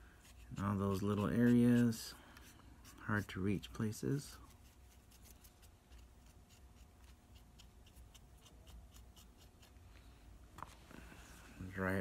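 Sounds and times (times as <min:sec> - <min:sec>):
swab scrubbing scratchily: 0:00.2 - 0:03.4.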